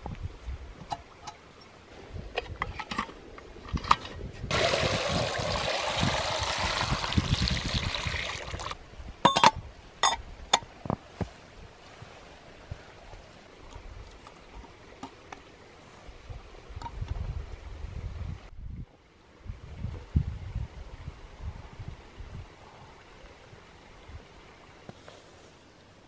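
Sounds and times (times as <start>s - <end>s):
water splashing into metal pot: 4.5s - 8.8s.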